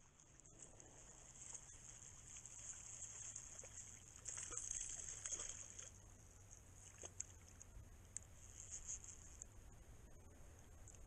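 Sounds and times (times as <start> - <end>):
fish splashing in water: 0.6 - 6.0.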